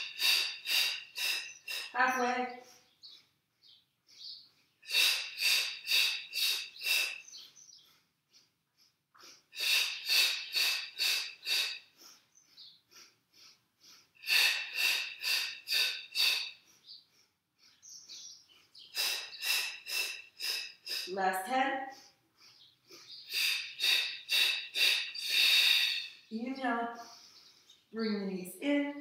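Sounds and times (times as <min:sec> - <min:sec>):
woman breathing sharply: 0:00.0 - 0:02.0, 0:04.1 - 0:21.2, 0:21.9 - 0:26.3, 0:27.0 - 0:27.8.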